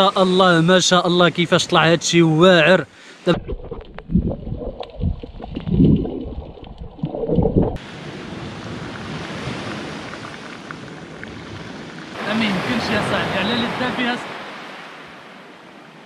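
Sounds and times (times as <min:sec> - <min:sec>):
wind buffeting microphone: 0:03.3 - 0:12.2
wind and sea surf: 0:07.7 - 0:16.0.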